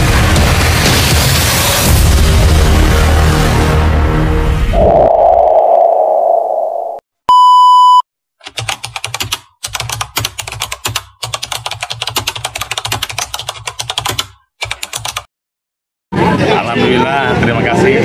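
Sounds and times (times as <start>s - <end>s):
music: 0.0s - 4.7s
short electronic beep: 6.9s - 8.0s
keyboard typing clicks: 8.4s - 15.3s.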